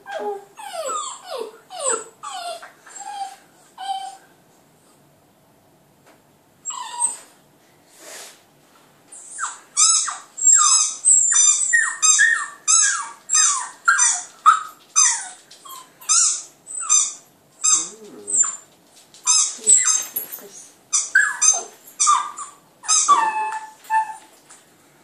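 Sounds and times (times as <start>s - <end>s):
puppy howling: 21.0s - 24.3s.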